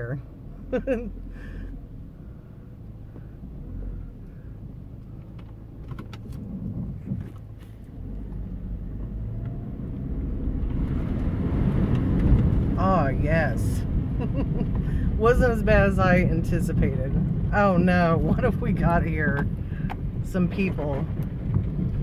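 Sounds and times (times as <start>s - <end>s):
car engine running: 0.0s - 22.0s
water splashing under car: 10.1s - 22.0s.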